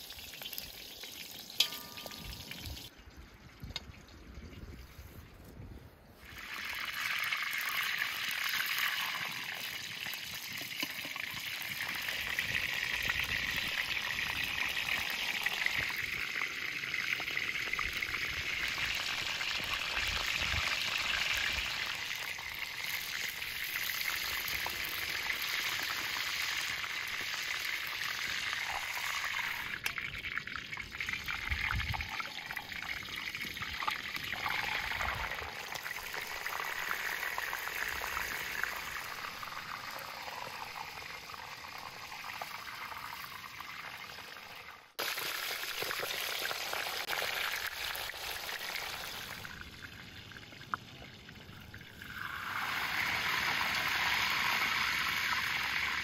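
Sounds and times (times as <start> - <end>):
meat sizzling in hot oil: 6.2 - 29.8, 30.9 - 41.0, 45.0 - 49.6, 52.0 - 56.0.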